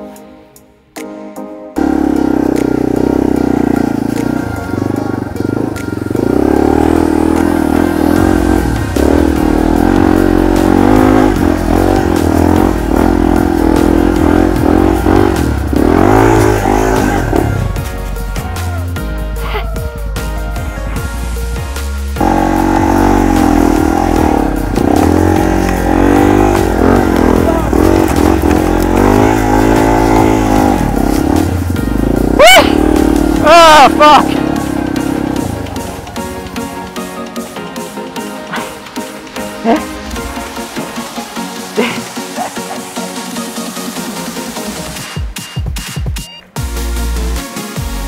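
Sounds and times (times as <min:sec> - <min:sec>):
dirt bike engine revving: 0:01.8 - 0:17.8, 0:22.0 - 0:37.5.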